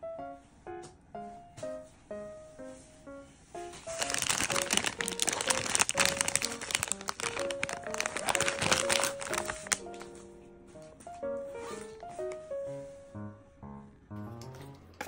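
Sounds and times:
soft keyboard melody: 0:00.0 - 0:15.0
plastic packaging crinkling: 0:03.8 - 0:10.2.

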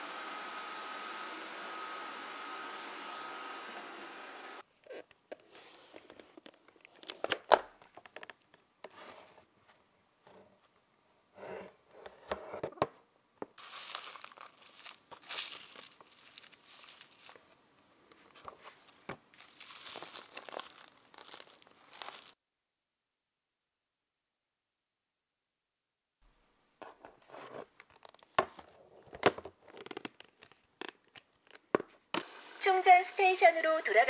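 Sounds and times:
rustling of dry leaves and gravel: 0:13.6 - 0:17.4, 0:19.3 - 0:22.4.

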